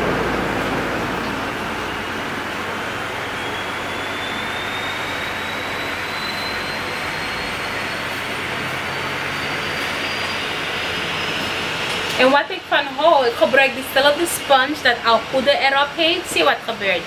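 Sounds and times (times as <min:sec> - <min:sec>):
faint high whine: 0:00.0 - 0:12.3
rushing mechanical noise: 0:00.0 - 0:17.0.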